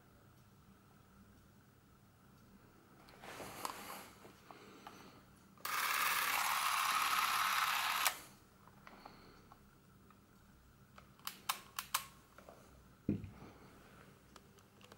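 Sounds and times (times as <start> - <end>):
camera clicks: 5.6 - 8.2, 11.2 - 12.1
movie camera motor whirring: 5.6 - 8.3.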